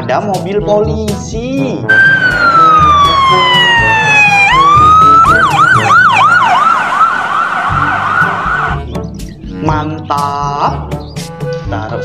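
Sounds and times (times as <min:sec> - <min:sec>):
background music: 0:00.0 - 0:12.0
police siren: 0:01.9 - 0:08.8.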